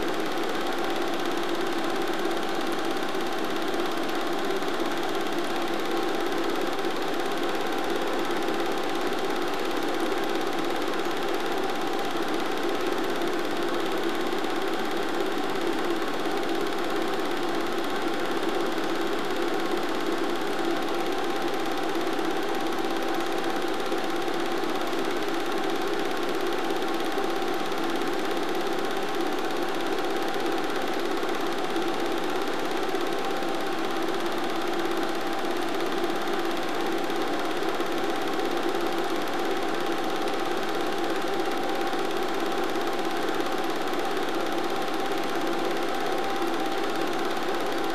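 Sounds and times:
film projector running: 0:00.0 - 0:47.9.

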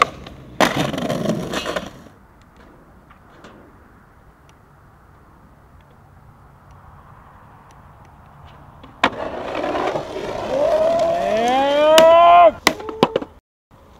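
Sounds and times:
skateboard cracking onto rail: 0:00.0 - 0:02.1, 0:08.9 - 0:13.3
skateboard trucks grinding rail: 0:00.0 - 0:03.9, 0:08.4 - 0:13.4.

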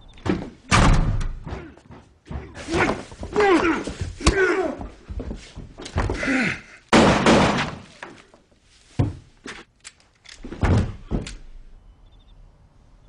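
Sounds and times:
heavy thuds and blows: 0:00.2 - 0:08.0, 0:10.5 - 0:11.4.

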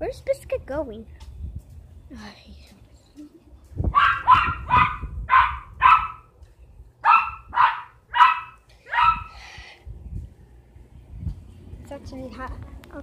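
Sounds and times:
dog barking: 0:03.9 - 0:06.3, 0:07.0 - 0:09.3.

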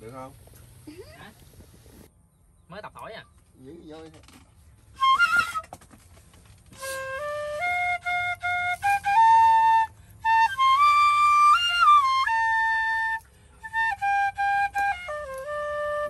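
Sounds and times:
bamboo flute melody: 0:04.8 - 0:16.0.

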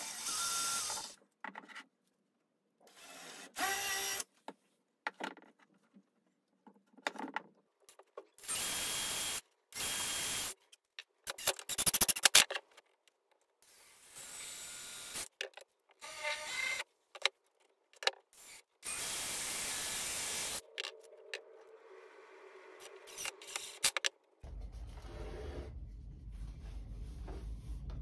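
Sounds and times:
cordless drill whirring: 0:00.0 - 0:01.2, 0:02.9 - 0:04.2, 0:08.4 - 0:10.6, 0:18.4 - 0:20.6.

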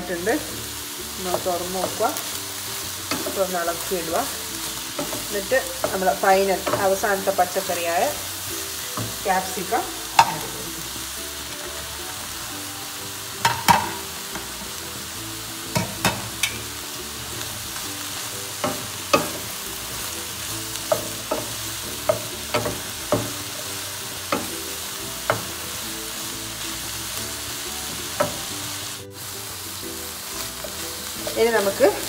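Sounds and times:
vegetables sizzling in a pan: 0:00.0 - 0:32.0
spatula knocking against pan: 0:13.4 - 0:14.0.

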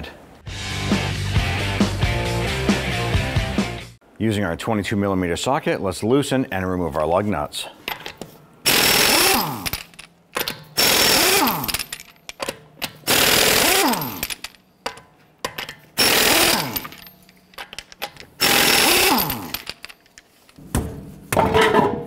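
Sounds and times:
air impact wrench bursts: 0:08.6 - 0:12.1, 0:12.9 - 0:14.6, 0:16.0 - 0:17.2, 0:18.4 - 0:20.0.

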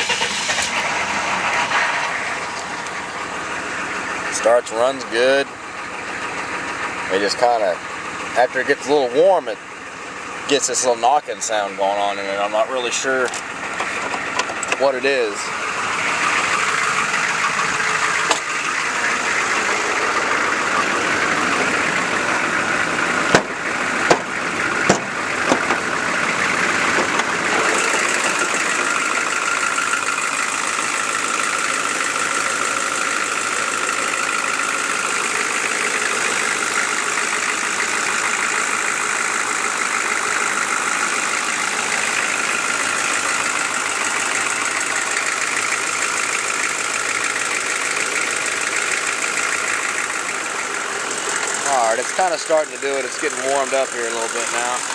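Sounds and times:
diesel engine idling: 0:00.0 - 0:54.9
sharp knocks: 0:23.3 - 0:25.9.

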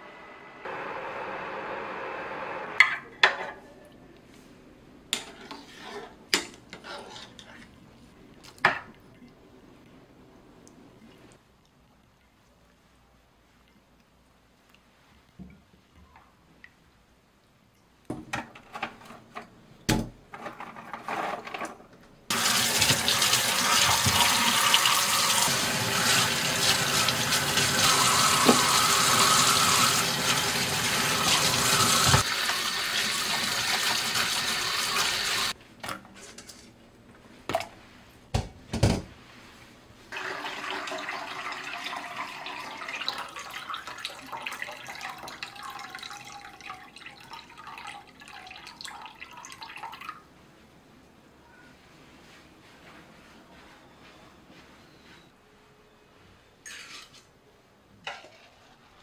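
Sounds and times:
tap water running into pot: 0:22.3 - 0:35.5, 0:40.1 - 0:50.1.

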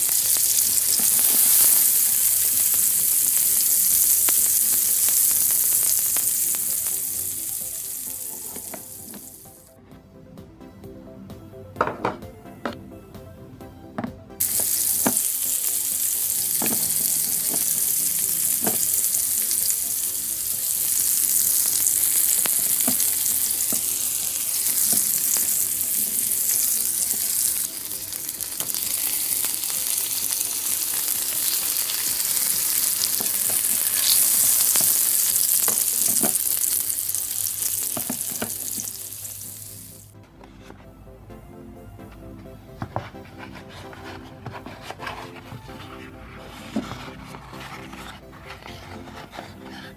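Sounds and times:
meat sizzling on a grill: 0:00.0 - 0:09.6, 0:14.4 - 0:40.1.

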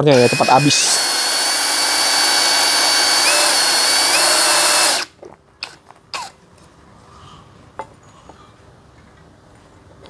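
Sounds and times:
drill boring through steel: 0:00.0 - 0:06.3.

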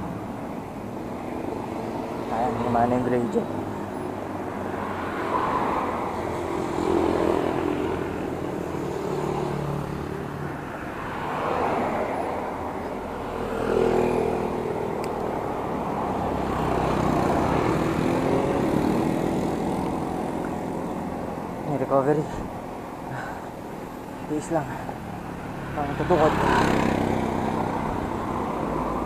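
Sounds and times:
motorcycles passing: 0:00.0 - 0:29.0
steady traffic rush: 0:00.0 - 0:29.0
car passing: 0:00.7 - 0:29.0.

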